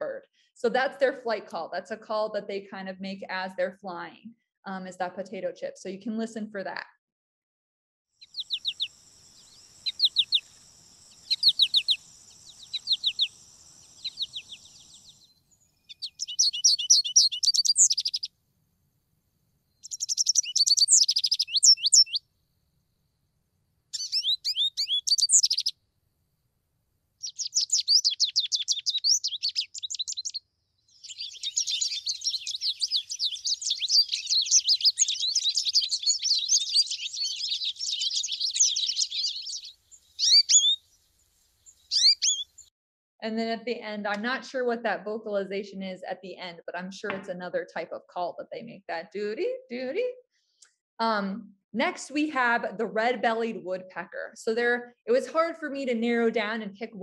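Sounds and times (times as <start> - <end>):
finch chirping and warbling: 8.2 - 18.3, 19.8 - 22.2, 23.9 - 25.7, 27.2 - 40.9, 41.6 - 42.7.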